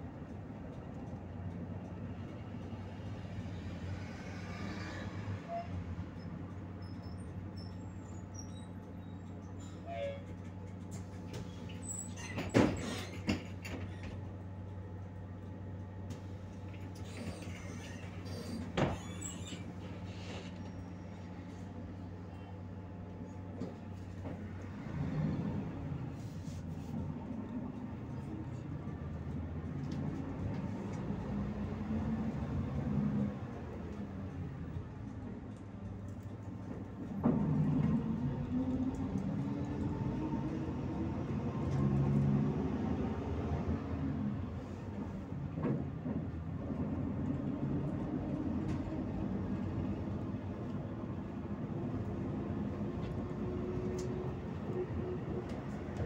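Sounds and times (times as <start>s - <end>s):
bus engine hum: 0.0s - 56.0s
road noise: 0.0s - 56.0s
faint short squeaks: 5.4s - 13.3s, 16.9s - 21.4s.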